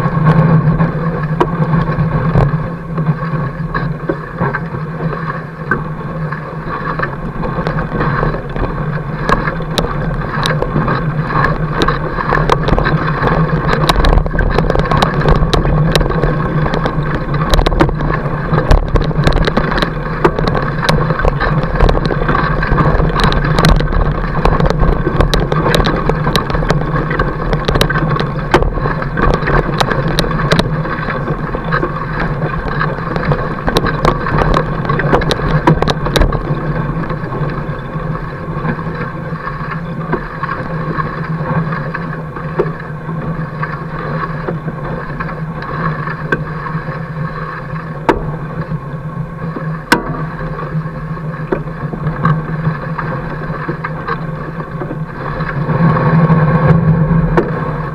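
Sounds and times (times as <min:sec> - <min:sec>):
sharp clicks and crunches: 0:05.7 - 0:48.8.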